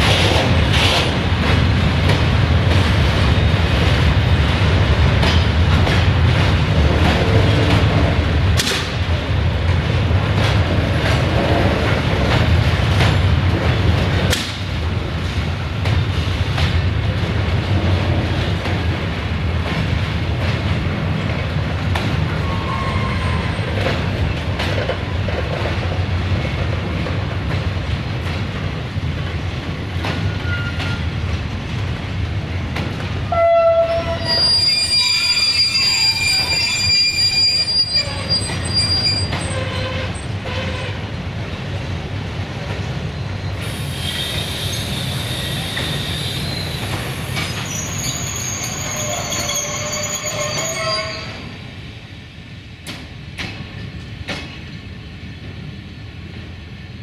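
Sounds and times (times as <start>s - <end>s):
freight train rumbling past: 0.0s - 57.0s
high metallic squeal: 33.6s - 40.7s, 47.5s - 51.4s.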